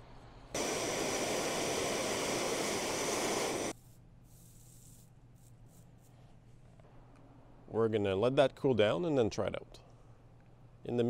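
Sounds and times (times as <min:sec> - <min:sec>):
gas torch flame hissing: 0:00.5 - 0:05.1.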